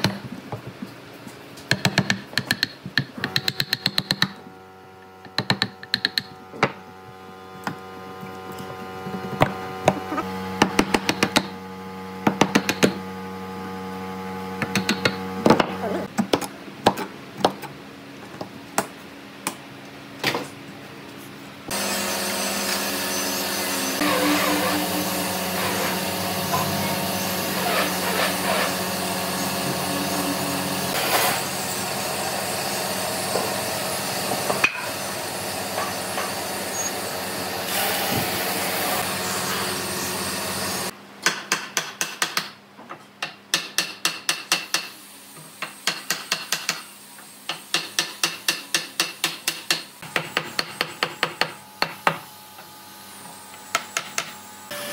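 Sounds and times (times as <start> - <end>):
power tool running: 21.7 - 40.9, 51.6 - 54.9.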